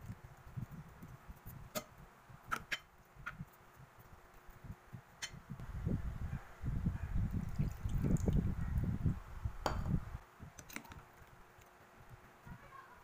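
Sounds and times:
juice pouring and splashing: 7.2s - 8.6s.

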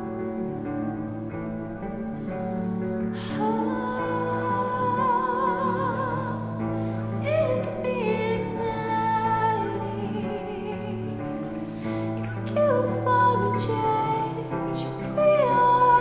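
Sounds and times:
high singing voice: 3.2s - 11.5s.

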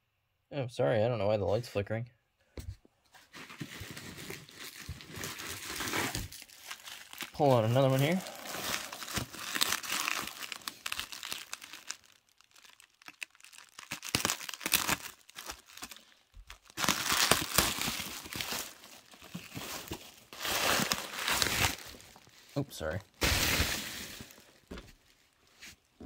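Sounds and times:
plastic packaging crinkling: 3.2s - 25.4s.

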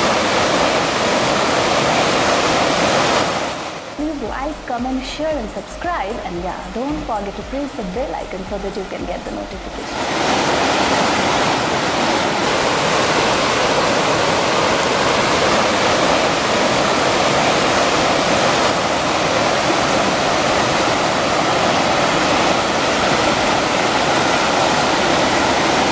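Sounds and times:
waterfall pouring: 0.0s - 25.9s.

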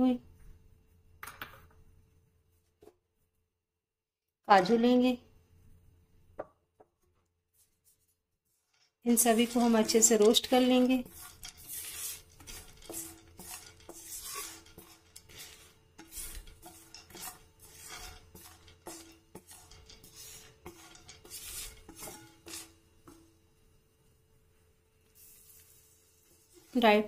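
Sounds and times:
spatula scraping nuts in pan: 8.5s - 23.4s, 25.2s - 27.0s.

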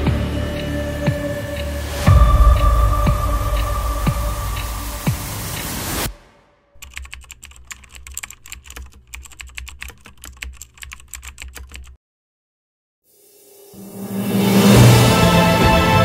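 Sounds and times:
low hum: 0.0s - 6.1s
keyboard key clicks: 6.8s - 12.0s.

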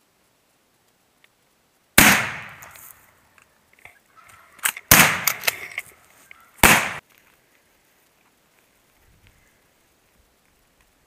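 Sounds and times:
shotgun blasts echoing: 2.0s - 2.8s, 4.9s - 5.5s, 6.6s - 7.0s.

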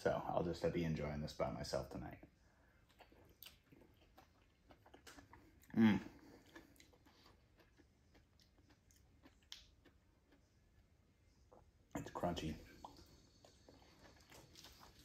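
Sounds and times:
person chewing crunchy stalks: 2.8s - 10.4s, 12.7s - 15.0s.

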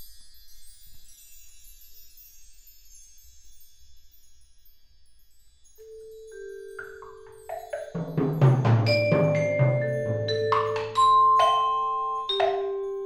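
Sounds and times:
bar chimes ringing: 5.8s - 13.0s
mallet-keyboard notes: 5.8s - 13.0s.

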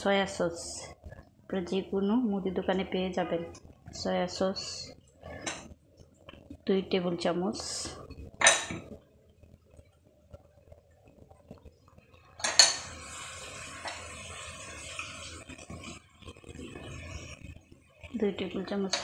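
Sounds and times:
steady hiss: 10.3s - 19.0s.

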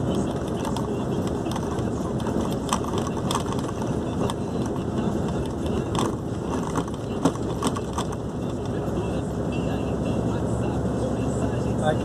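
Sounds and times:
vehicle engine and road noise: 0.0s - 12.0s
sharp rattles: 0.3s - 8.6s.

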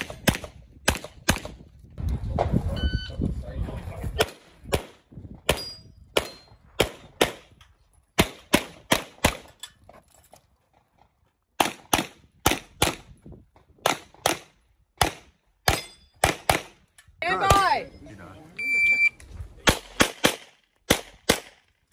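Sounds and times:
pistol shots: 8.2s - 9.5s, 19.6s - 21.6s.

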